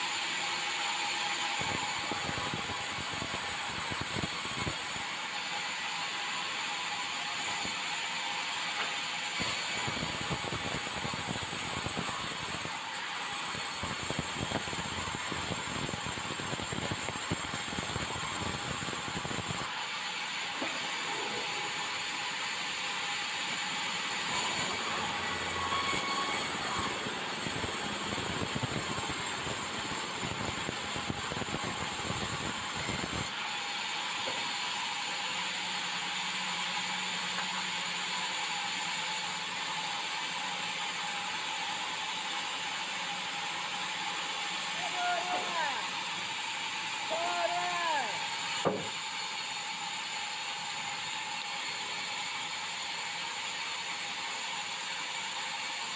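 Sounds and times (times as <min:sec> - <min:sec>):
band saw cutting timber: 0:23.6 - 0:30.9.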